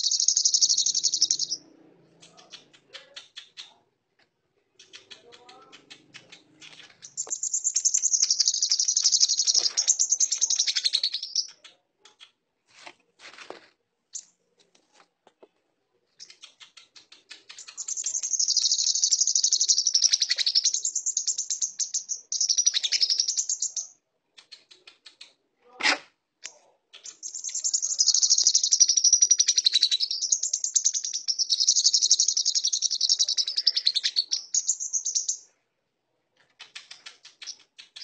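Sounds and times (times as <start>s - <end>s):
sunbird rapid high chattering: 0.0s - 1.6s, 4.7s - 12.3s.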